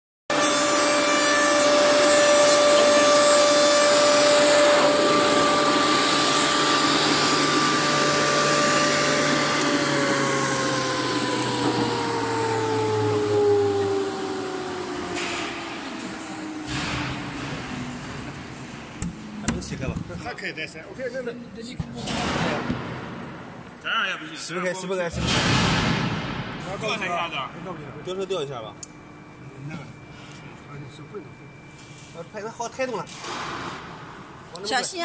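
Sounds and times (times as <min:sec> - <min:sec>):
milling machine spindle whine: 0:00.3 - 0:19.8.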